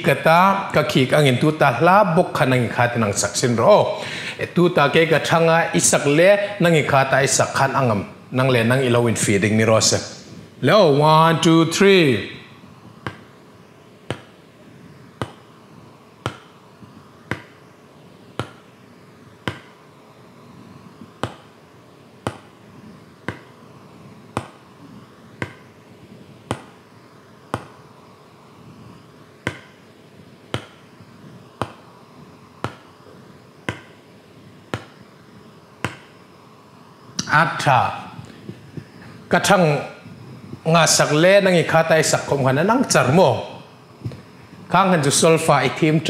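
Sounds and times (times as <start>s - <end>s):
marker tapping on a whiteboard: 13.0s - 13.3s, 14.1s - 14.3s, 15.2s - 15.4s, 16.2s - 16.5s, 17.3s - 17.6s, 19.4s - 19.8s, 21.2s - 21.5s, 22.2s - 22.5s, 23.3s - 23.5s, 24.4s - 24.6s, 26.5s - 26.7s, 29.4s - 29.7s, 30.5s - 30.8s, 33.7s - 33.9s.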